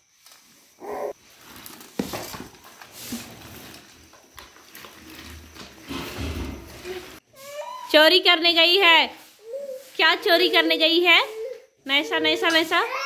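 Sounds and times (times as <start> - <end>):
toddler vocalizing: 0.8 - 1.2.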